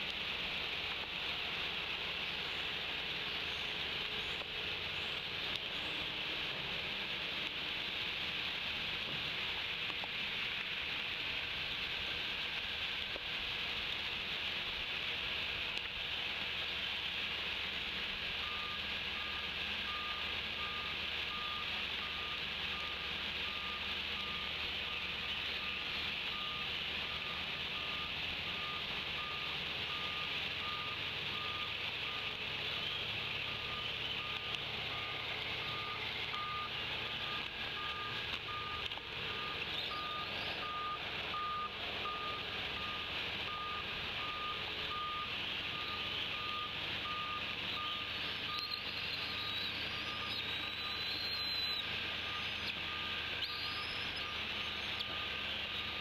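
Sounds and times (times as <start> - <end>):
rain hissing on leaves: 0.0 - 56.0
pulsing high beep: 33.5 - 55.2
faint bird chirps: 35.6 - 41.0, 47.6 - 56.0.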